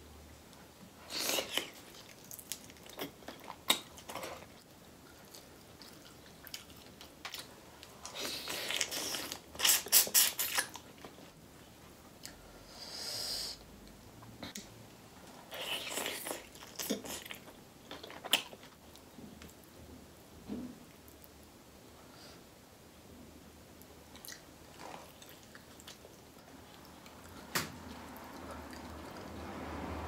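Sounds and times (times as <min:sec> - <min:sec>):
wet chewing and smacking: 0:01.1 - 0:11.3, 0:15.5 - 0:19.6, 0:24.1 - 0:29.4.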